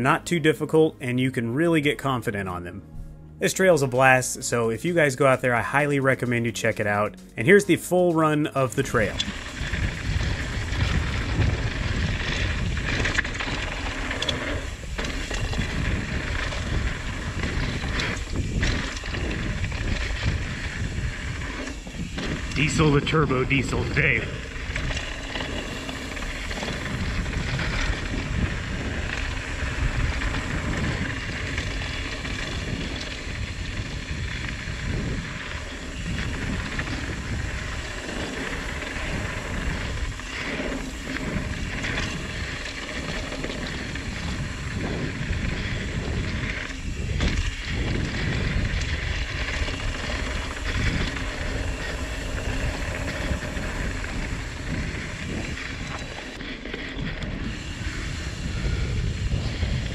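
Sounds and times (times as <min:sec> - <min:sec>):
wind buffeting microphone: 0:00.0 - 0:59.9
tyres hissing on dirt: 0:06.9 - 0:59.9.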